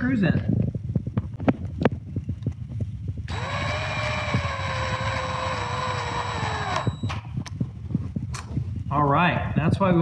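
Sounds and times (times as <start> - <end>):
power drill driving screw into wood: 3.3 - 7.2.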